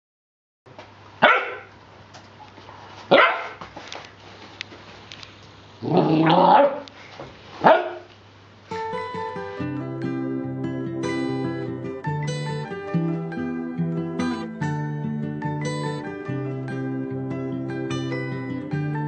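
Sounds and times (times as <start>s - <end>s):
puppy barking: 1.2s - 1.7s, 3.1s - 3.6s, 5.8s - 6.9s, 7.6s - 8.1s
plucked guitar music: 8.7s - 19.0s.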